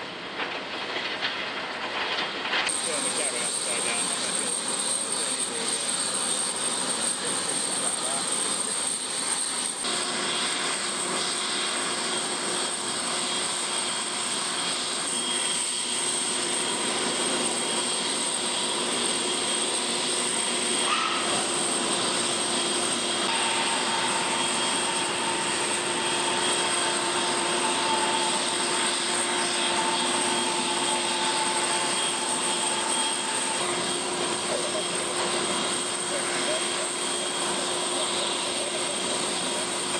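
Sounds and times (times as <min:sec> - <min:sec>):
aircraft machinery whine and rush: 0:00.0 - 0:39.9
higher tone: 0:20.8 - 0:37.3.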